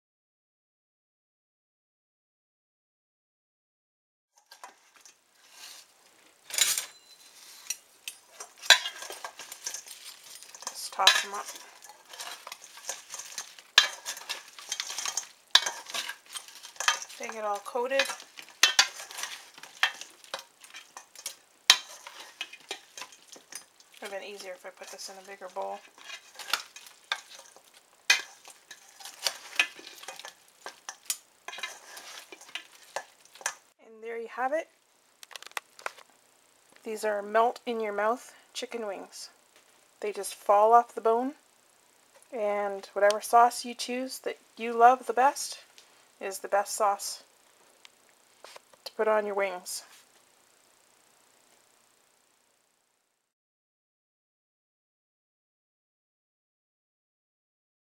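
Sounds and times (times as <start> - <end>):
sharp clink: 6.5 - 9.0
utensils clattering against bowl: 6.5 - 33.6.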